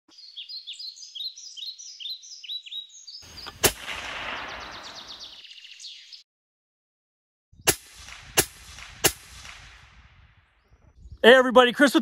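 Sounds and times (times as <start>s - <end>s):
bird chirping downward: 0.1s - 6.2s
gunshot: 3.4s - 5.4s, 7.6s - 10.3s.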